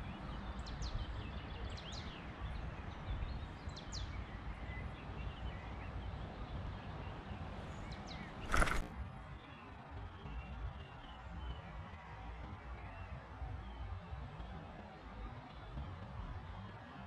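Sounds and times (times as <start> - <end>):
birds high sweeping calls: 8.4 - 8.9.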